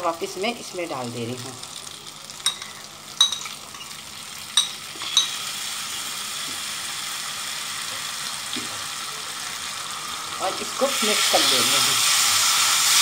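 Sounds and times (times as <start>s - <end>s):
oil sizzling: 0.0s - 13.0s
metal utensil clinking on pan: 2.4s - 4.0s, 4.6s - 5.4s.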